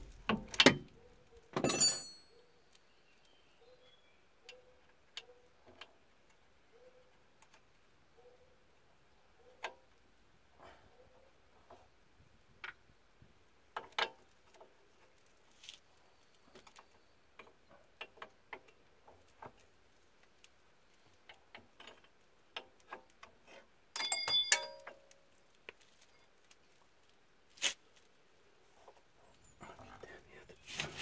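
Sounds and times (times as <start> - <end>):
clatter of ringing metal: 24.0 - 25.0.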